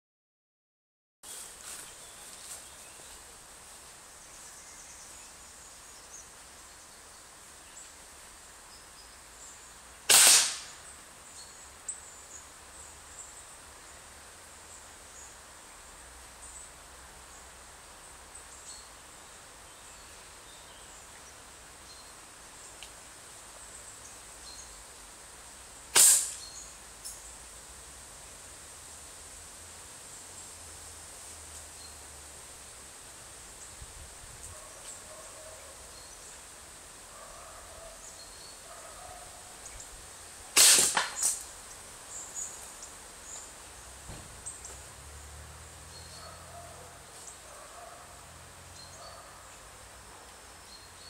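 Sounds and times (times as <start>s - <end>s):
slingshot firing: 10.1s - 10.8s, 25.9s - 26.4s, 40.6s - 41.4s.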